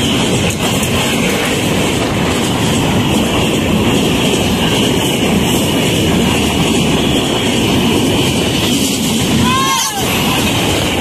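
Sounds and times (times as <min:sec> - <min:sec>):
train passing at high speed: 0:00.0 - 0:11.0.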